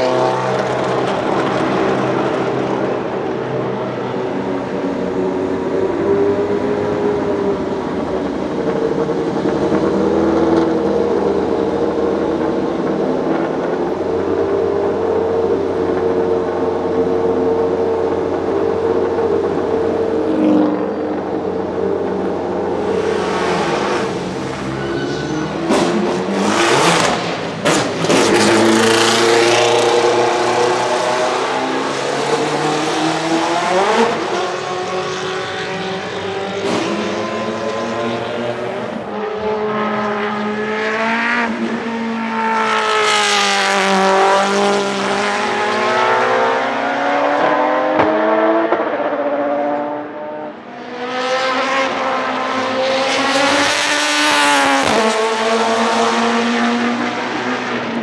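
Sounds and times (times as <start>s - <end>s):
racing car engine accelerating: 25.4s - 58.0s.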